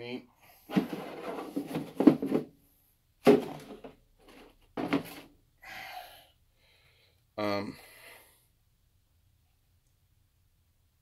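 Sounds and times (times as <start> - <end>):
items knocking and rustling: 0.7 - 2.6, 3.2 - 5.4.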